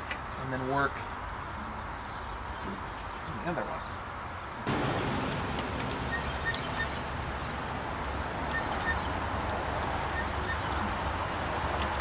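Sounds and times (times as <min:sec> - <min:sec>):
outdoor low rumble: 0:04.6 - 0:12.0.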